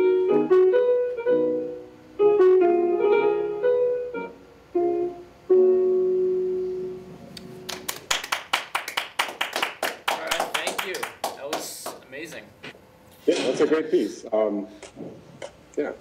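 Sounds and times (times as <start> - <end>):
piano playing: 0.0 - 8.2.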